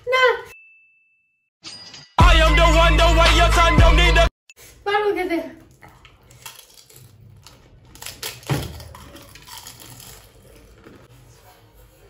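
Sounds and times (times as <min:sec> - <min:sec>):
crisp shells crunching when chewed: 0:05.7 - 0:11.1.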